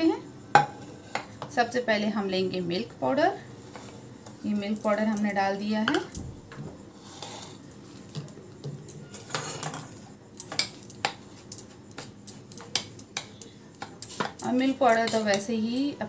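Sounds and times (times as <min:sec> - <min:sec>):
spoon scraping a bowl: 0:06.9 - 0:08.0, 0:09.0 - 0:15.5.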